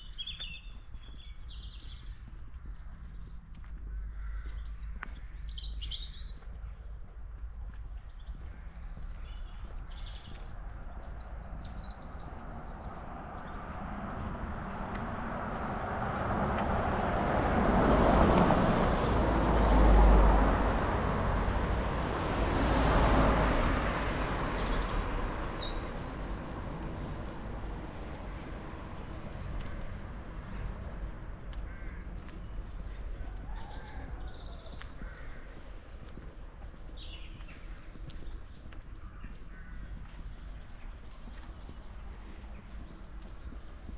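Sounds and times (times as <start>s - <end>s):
small birds chirping: 0.0s - 13.9s, 24.2s - 26.8s, 28.3s - 43.9s
vehicles passing: 0.0s - 43.9s.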